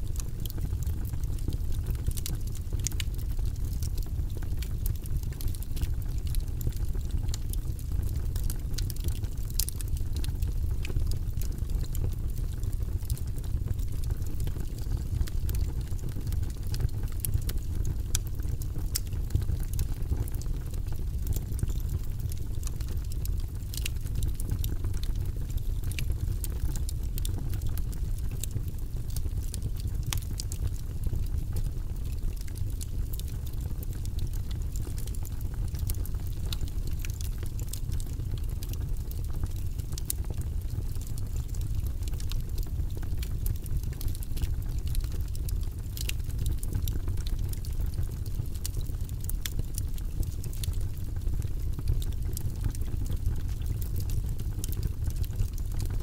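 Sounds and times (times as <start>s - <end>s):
fire rumbling: 0.0s - 56.0s
wood crackling and popping: 0.0s - 56.0s.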